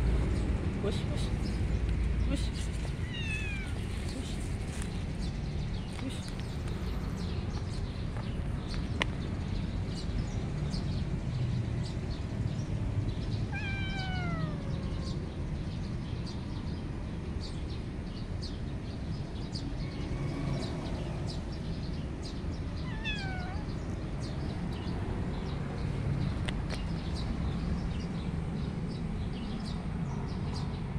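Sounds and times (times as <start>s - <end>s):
kitten meowing: 2.9s - 4.4s, 13.5s - 15.3s, 22.8s - 23.8s.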